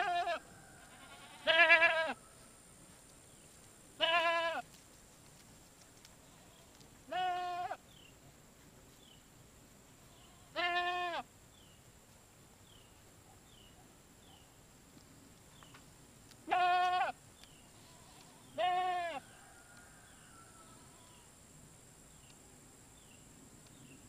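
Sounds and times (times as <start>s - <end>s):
goats bleating: 0.0s - 2.2s, 4.0s - 4.6s, 7.1s - 7.8s, 10.1s - 11.2s, 16.5s - 17.2s, 17.8s - 19.2s.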